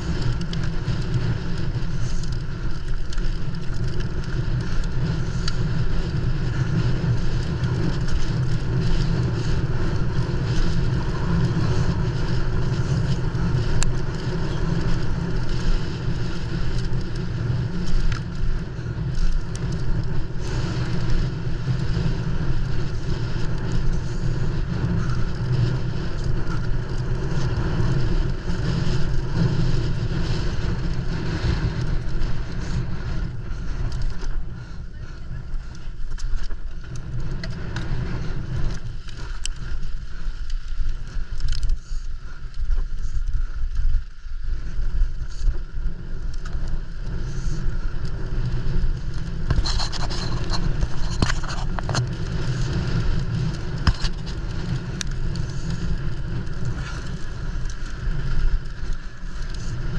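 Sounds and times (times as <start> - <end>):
bike tyre and frame noise: 0.0 - 59.9
sharp bike rattles: 0.0 - 59.9
wind rush on microphone: 0.0 - 59.9.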